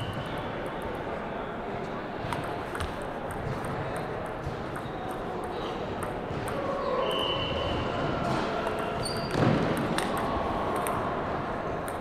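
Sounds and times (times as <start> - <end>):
ping pong ball clicking: 2.3 - 6.6, 8.6 - 11.0, 11.8 - 12.0
short high squeaks: 9.0 - 9.4.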